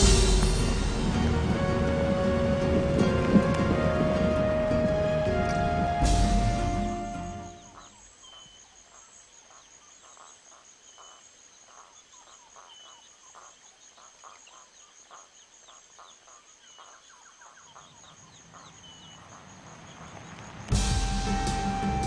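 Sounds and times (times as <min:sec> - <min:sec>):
insect trill: 0:00.0 - 0:22.0
bird chirps: 0:06.6 - 0:20.5.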